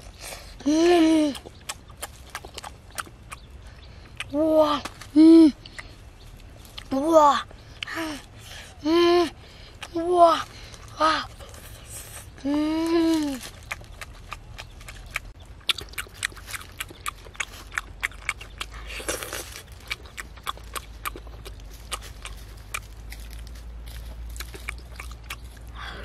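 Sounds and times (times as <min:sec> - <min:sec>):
wet lip-smacks and chewing: 0:01.3 - 0:04.4, 0:13.4 - 0:23.4, 0:24.4 - 0:26.0.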